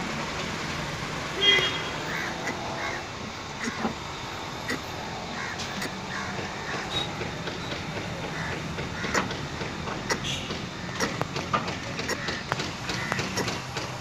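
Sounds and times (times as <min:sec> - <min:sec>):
sharp clicks and knocks: 0:05.6 - 0:14.0.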